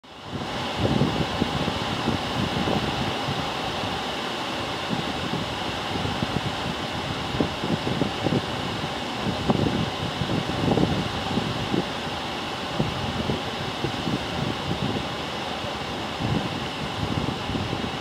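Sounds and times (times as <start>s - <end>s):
machine hum and hiss: 0.0s - 18.0s.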